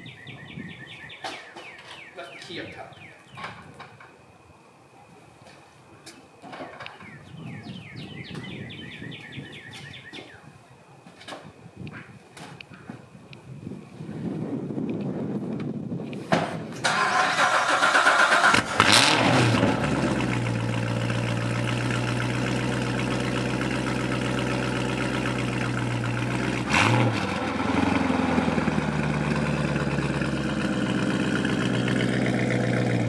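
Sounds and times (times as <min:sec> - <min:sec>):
car engine revving and idling: 0:18.4 - 0:33.0.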